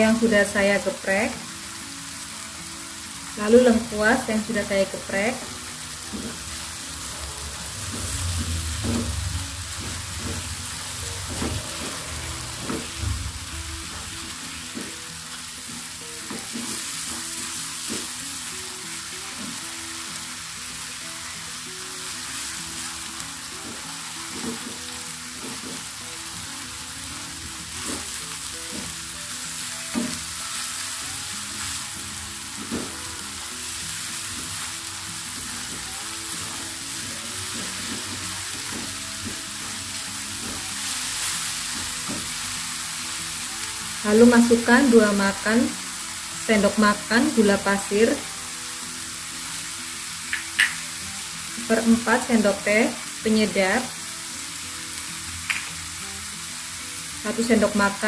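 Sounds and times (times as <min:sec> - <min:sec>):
paste sizzling in hot oil: 0:00.0 - 0:58.0.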